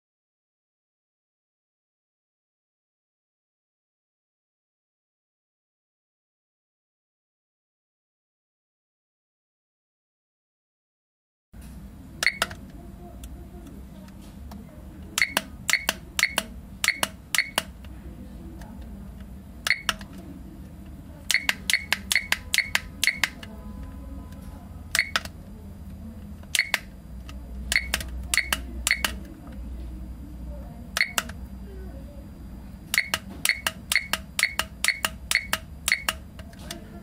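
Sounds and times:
steady low hum: 11.6s - 37.0s
alarm clock key-press beeps: 12.2s - 12.6s, 15.2s - 17.7s, 19.7s - 20.0s, 21.3s - 23.5s, 24.9s - 25.3s, 26.5s - 26.9s, 27.7s - 29.2s, 31.0s - 31.3s, 32.9s - 36.2s.

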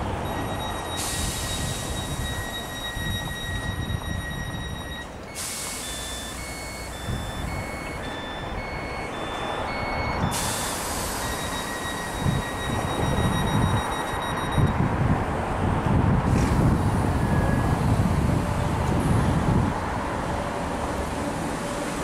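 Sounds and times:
steady high warning tone: 0.0s - 14.8s
alternating two-note beeps: 0.2s - 14.8s
hiss: 5.4s - 6.1s, 10.3s - 11.3s.

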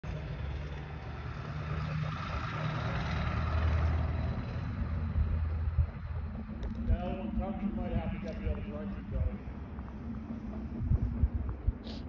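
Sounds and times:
heavy engine rumbling: 0.0s - 12.0s
faint high whine: 4.1s - 12.0s.

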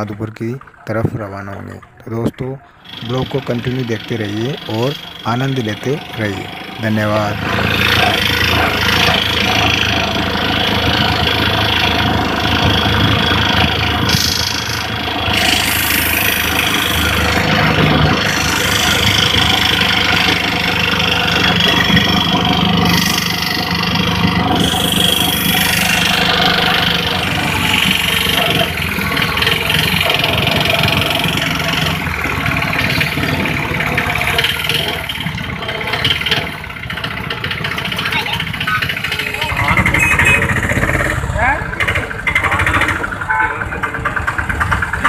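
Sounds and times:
auto-rickshaw engine running: 0.0s - 45.0s
road noise: 0.0s - 45.0s.

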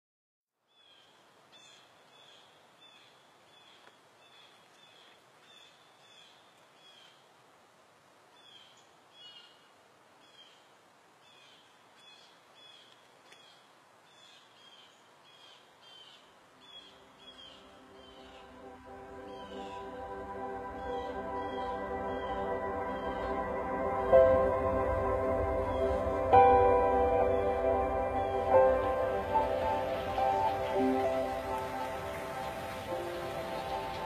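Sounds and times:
soft hiss: 0.7s - 21.8s, 25.7s - 34.0s.

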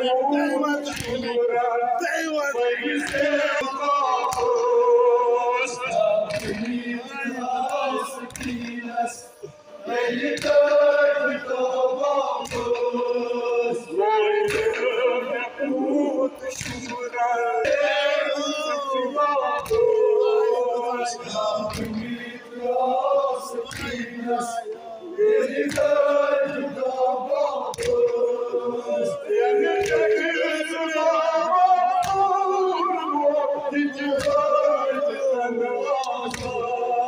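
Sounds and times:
man singing lament: 0.0s - 37.0s
men chanting in unison: 0.0s - 37.0s
chest-beating slaps: 0.9s - 1.3s, 3.0s - 3.4s, 6.0s - 6.9s, 7.7s - 8.8s, 10.3s - 10.8s, 12.4s - 12.9s, 16.5s - 17.0s, 19.6s - 19.9s, 21.7s - 22.2s, 23.7s - 24.1s, 27.7s - 28.2s, 36.0s - 36.6s.

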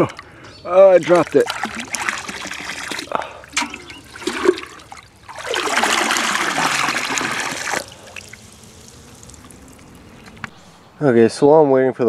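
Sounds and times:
water sloshing and splashing: 0.0s - 10.8s
water pouring from a pot: 0.9s - 10.5s.

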